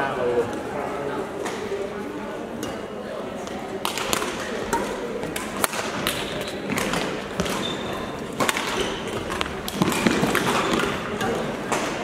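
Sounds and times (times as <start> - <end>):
murmur of play on nearby courts: 0.0 - 12.0
rackets smacking shuttlecock: 3.8 - 12.0.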